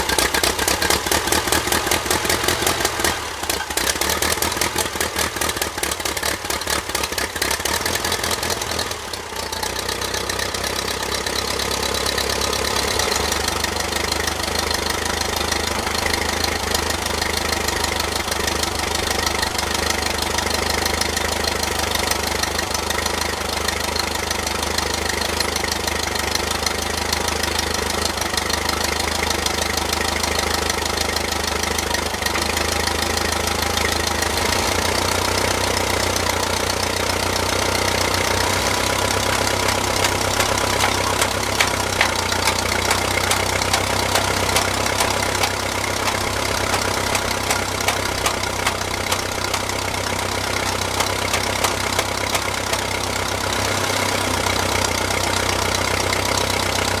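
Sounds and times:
tractor engine running: 0.0s - 57.0s
sharp knocks: 39.7s - 49.9s.

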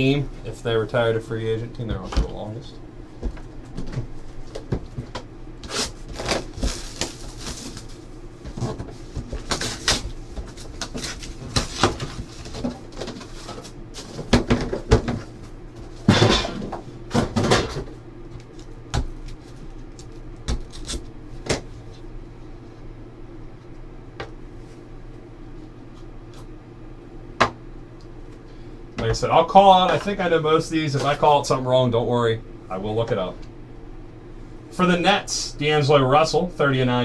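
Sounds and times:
cards and packaging rustling: 5.7s - 8.0s.

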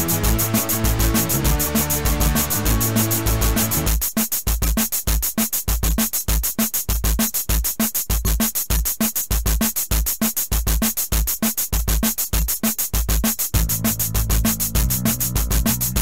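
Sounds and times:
fast hi-hat ticks: 0.0s - 16.0s
deep bass thumps: 13.6s - 16.0s.

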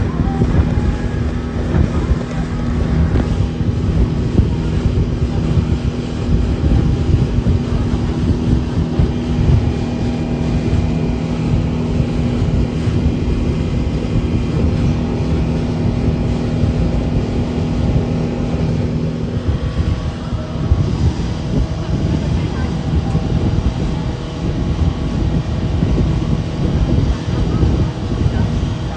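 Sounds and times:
motorboat engine droning: 0.0s - 28.9s
wake and spray rushing: 0.0s - 28.9s
wind buffeting microphone: 0.0s - 28.9s.

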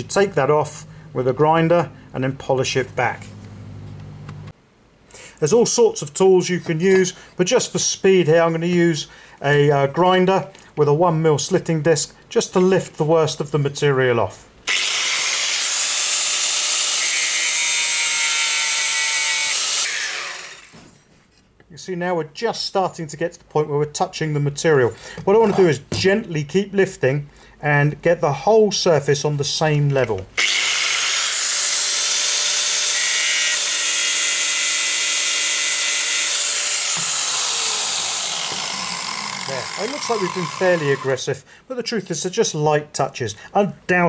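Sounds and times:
angle grinder grinding metal: 14.7s - 20.8s, 30.4s - 41.2s.

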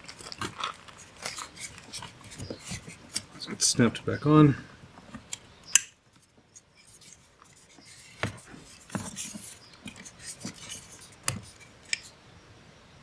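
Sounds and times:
plastic scraping and rubbing: 0.0s - 4.0s, 6.1s - 12.1s.

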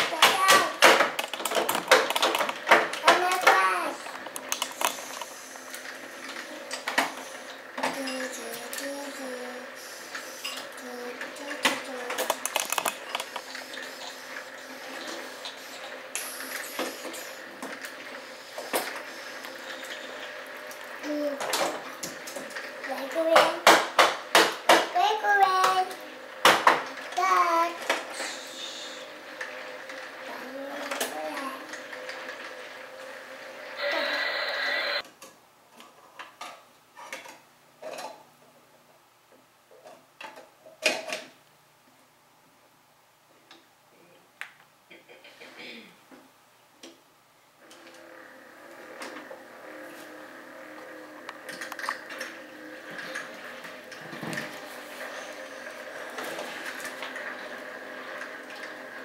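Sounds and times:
plastic toy cars knocking on wood: 0.0s - 3.6s, 23.2s - 25.0s
plastic toy clicks and knocks: 0.0s - 3.7s, 11.5s - 13.5s.

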